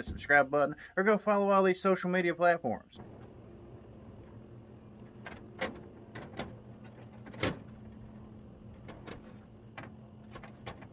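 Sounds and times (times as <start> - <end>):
steady low hum: 0.0 - 10.9
wire strippers clicking and tapping: 8.7 - 10.9.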